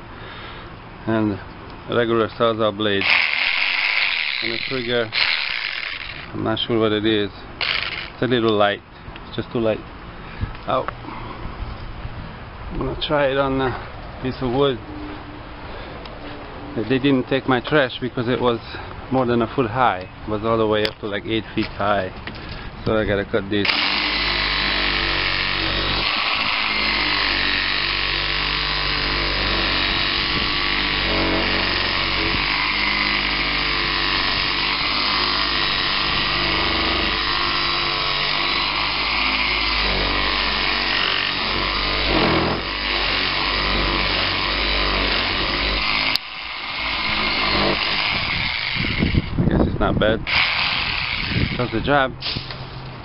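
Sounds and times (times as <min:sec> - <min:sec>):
reciprocating saw cutting branch: 0:03.0 - 0:06.4, 0:07.6 - 0:08.2, 0:23.7 - 0:49.4, 0:50.3 - 0:52.8.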